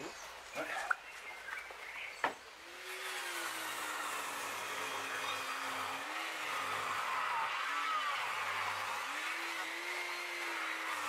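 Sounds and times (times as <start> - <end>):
woodworking machine cutting plank: 2.2 - 11.0.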